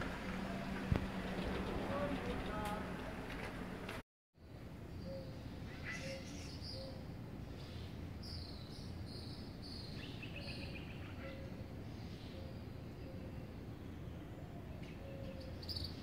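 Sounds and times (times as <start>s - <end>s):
birds singing: 4.4s - 16.0s.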